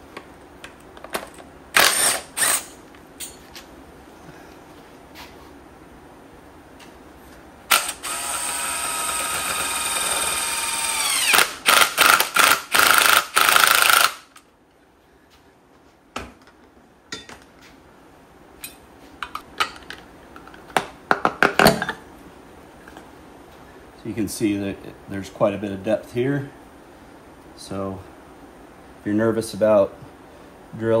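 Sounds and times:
cordless drill whining: 7.7s - 14.2s.

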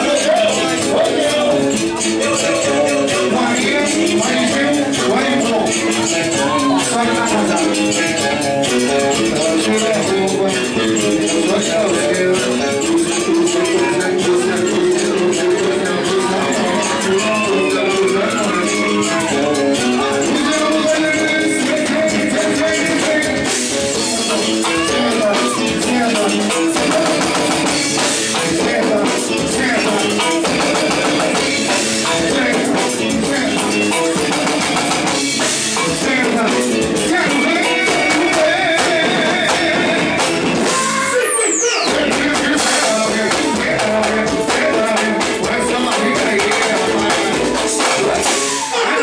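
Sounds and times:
drums and percussion: 0.0s - 49.0s
person singing: 0.0s - 49.0s
high falling pitch sweep: 40.6s - 42.3s.

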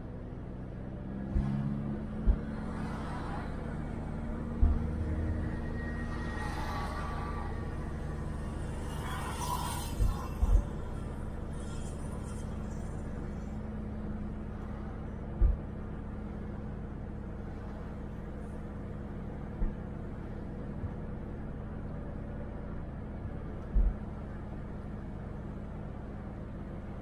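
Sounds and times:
car engine and road noise: 0.0s - 27.0s
steady hum: 3.9s - 21.9s.

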